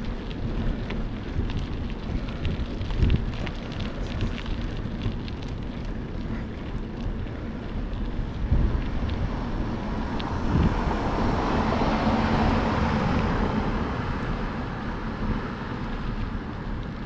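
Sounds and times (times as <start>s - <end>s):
car engine and tyre noise: 0.0s - 17.0s
wind noise on microphone: 0.0s - 17.0s.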